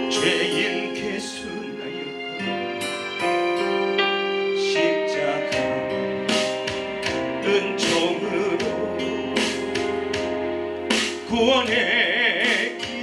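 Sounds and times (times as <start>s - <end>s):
man singing into a microphone: 0.0s - 2.2s, 4.6s - 6.0s, 7.3s - 9.9s, 11.2s - 13.0s
piano and keyboard accompaniment: 0.0s - 13.0s.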